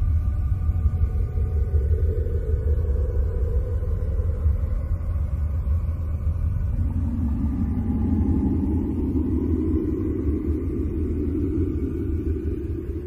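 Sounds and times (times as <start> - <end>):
deep rumbling drone: 0.0 - 13.0.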